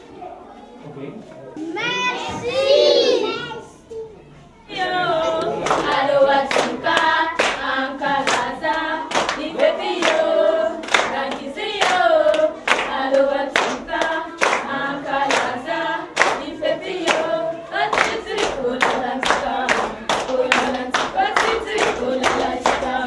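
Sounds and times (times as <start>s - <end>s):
children singing in chorus: 1.9s - 3.8s, 4.6s - 23.0s
hands clapping in time: 8.3s - 13.0s, 13.6s - 15.6s, 17.9s - 23.0s.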